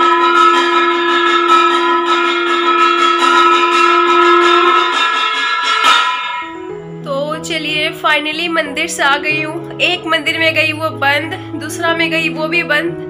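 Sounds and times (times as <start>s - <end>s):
temple bells ringing: 0.0s - 7.0s.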